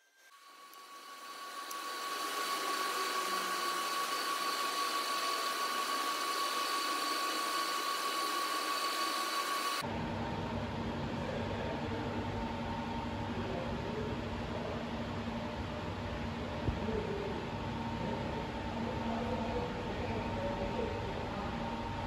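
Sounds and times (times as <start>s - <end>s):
workshop machine hiss and whine: 0.1s - 9.8s
low steady machine hum: 0.4s - 22.0s.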